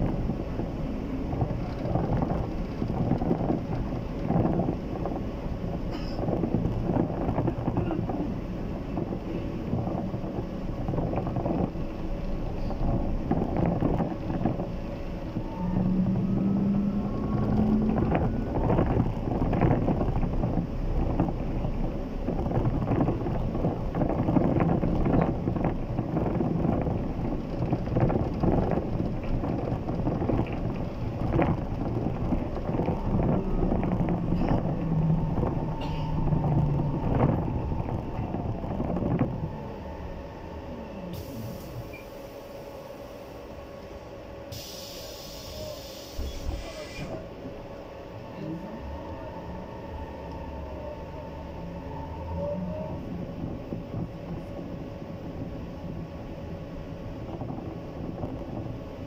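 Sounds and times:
trolleybus ride rumble: 0:00.0 - 0:59.0
body knocks and rattles: 0:01.2 - 0:11.9, 0:17.4 - 0:39.5.

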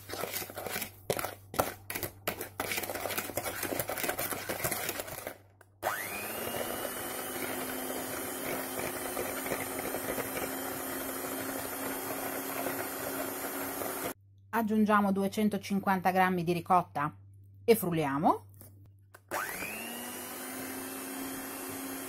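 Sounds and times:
electric hand mixer whining: 0:02.8 - 0:14.2, 0:19.3 - 0:22.0.

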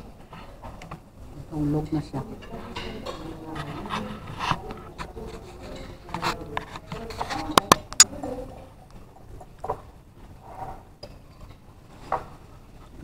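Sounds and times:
faint background voices: 0:00.0 - 0:09.6
cutlery clinking on a plate: 0:01.9 - 0:03.4.

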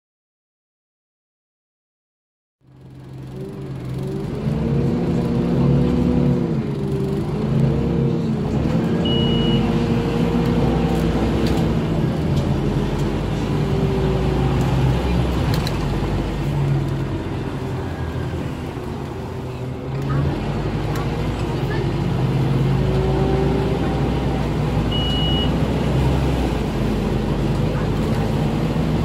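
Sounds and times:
bus diesel engine: 0:02.6 - 0:29.0
short high beep: 0:09.0 - 0:09.7, 0:24.9 - 0:25.5.

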